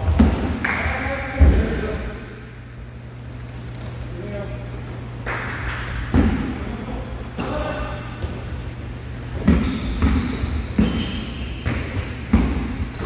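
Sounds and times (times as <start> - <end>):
basketballs bouncing on wood floor: 0.0 - 0.6, 5.9 - 6.6, 7.4 - 13.0
sneakers squeaking: 1.4 - 13.0.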